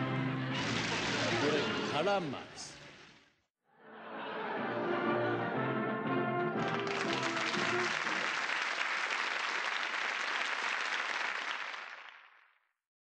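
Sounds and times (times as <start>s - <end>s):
studio audience applauding: 6.5s - 12.6s.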